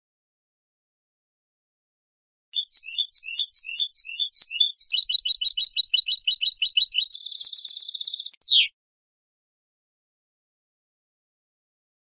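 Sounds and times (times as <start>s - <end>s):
finch singing: 2.6s - 8.7s.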